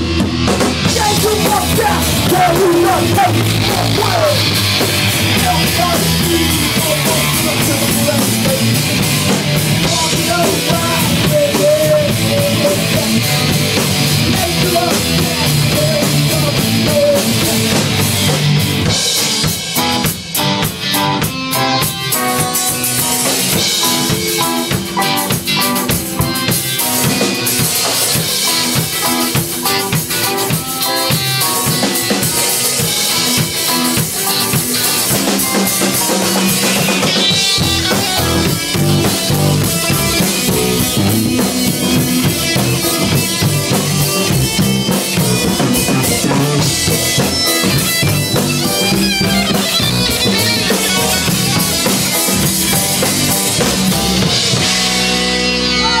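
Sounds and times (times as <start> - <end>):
rock band playing live: 0.0 - 56.0
drum hits: 22.0 - 32.5, 33.4 - 55.2.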